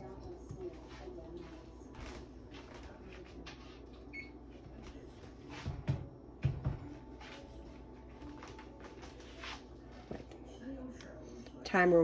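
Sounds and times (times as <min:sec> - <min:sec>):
oven timer beep: 0:04.1 - 0:04.4.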